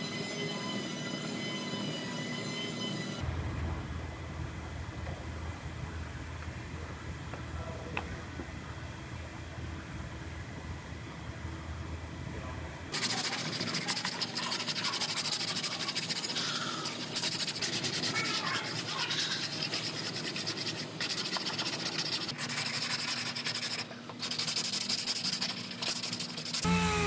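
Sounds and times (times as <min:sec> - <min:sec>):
sandpaper rasping on metal: 0:12.9 - 0:27.0.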